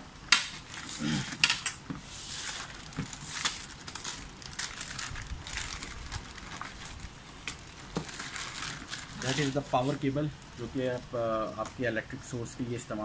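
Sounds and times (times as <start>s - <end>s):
plastic bag crinkling: 2.3s - 10.2s.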